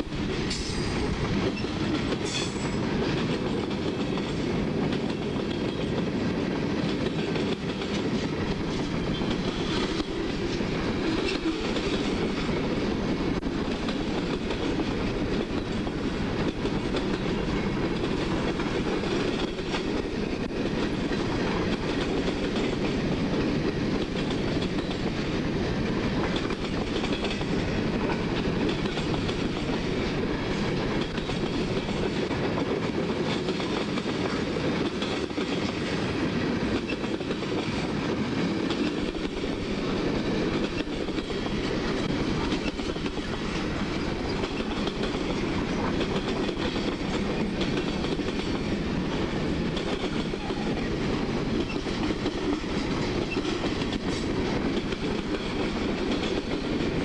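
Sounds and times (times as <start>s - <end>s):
steel wheels rumbling on rails: 0.0s - 57.0s
wheels clicking over rail joints: 13.3s - 36.0s, 36.7s - 57.0s.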